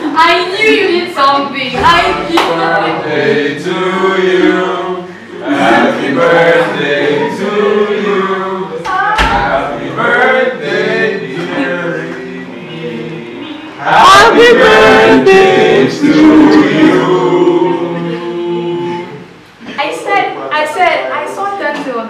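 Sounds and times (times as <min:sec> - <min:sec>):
group of people singing: 0:01.8 - 0:19.4.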